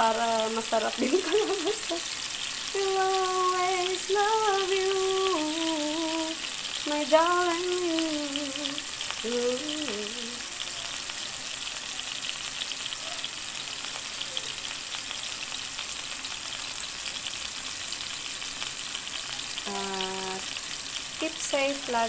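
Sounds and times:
person singing: 0:00.0 - 0:02.2, 0:02.8 - 0:11.1, 0:19.6 - 0:20.5
fish sizzling in oil: 0:00.0 - 0:22.0.

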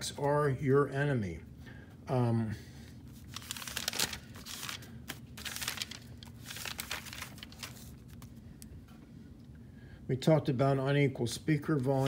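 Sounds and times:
notebook pages rustling: 0:03.1 - 0:08.4, 0:11.8 - 0:12.0.

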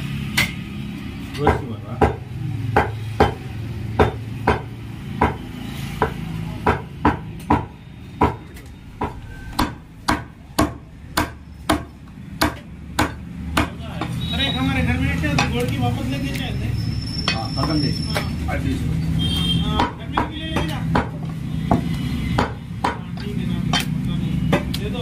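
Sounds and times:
cleaver chopping on wooden block: 0:01.4 - 0:03.4, 0:04.0 - 0:05.4, 0:06.0 - 0:13.8, 0:19.7 - 0:24.8.

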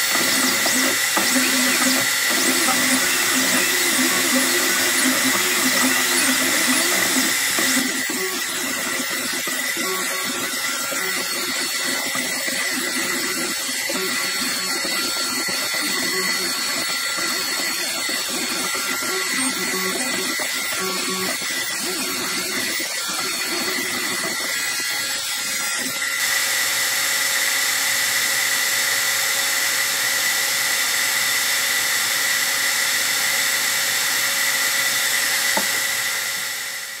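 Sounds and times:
stepper motors start-stop moves: 0:00.0 - 0:25.0.

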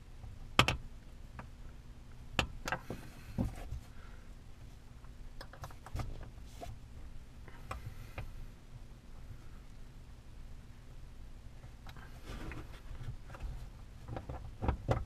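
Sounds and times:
hard plastic clicks and knocks: 0:14.0 - 0:15.0.

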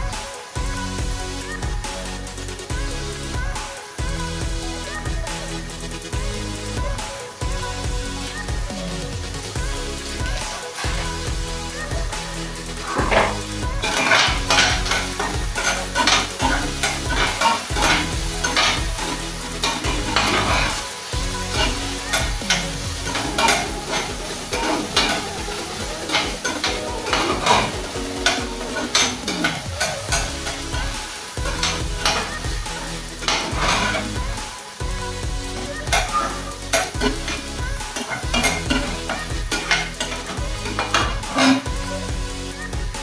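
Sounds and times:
vegetables sizzling: 0:12.6 - 0:42.1
metal spoon scraping a pan: 0:12.8 - 0:34.3, 0:35.6 - 0:41.7.

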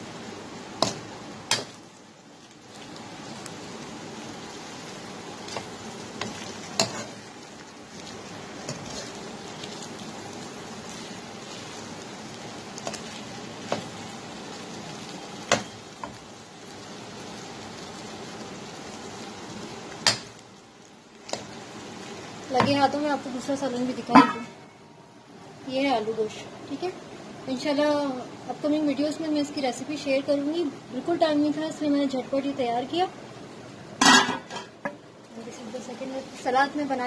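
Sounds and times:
meat sizzling in a frying pan: 0:00.0 - 0:24.2, 0:25.7 - 0:37.0
metal spoon scraping a pan: 0:05.5 - 0:07.2.

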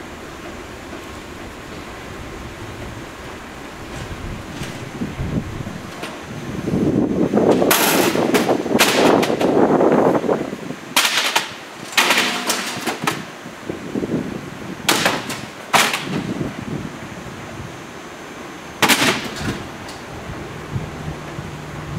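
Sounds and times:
shredder grinding rumble: 0:00.0 - 0:07.0.

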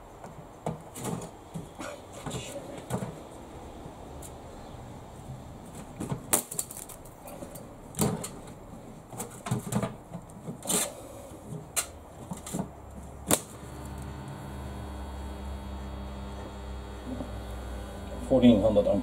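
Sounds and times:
steady mains hum: 0:13.2 - 0:19.0.

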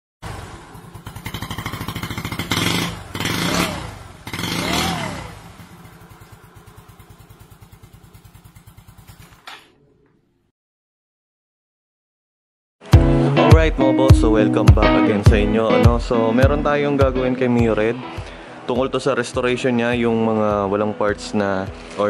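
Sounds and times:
motorcycle engine idling and revving: 0:00.2 - 0:09.7.

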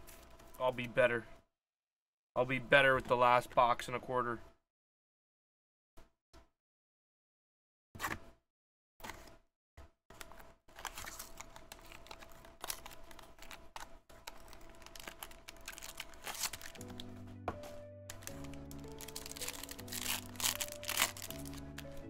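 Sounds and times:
shrink wrap crackling: 0:10.2 - 0:17.3, 0:18.0 - 0:22.0
background music: 0:14.9 - 0:22.0.

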